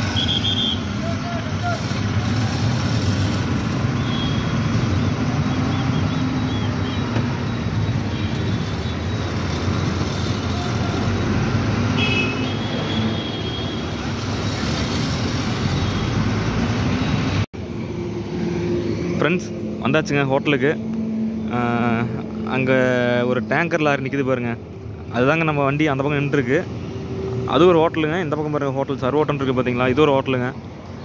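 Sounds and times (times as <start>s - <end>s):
vehicle horn toot: 0.0s - 1.0s, 4.0s - 4.6s, 11.9s - 13.9s
road and traffic noise: 0.0s - 31.0s.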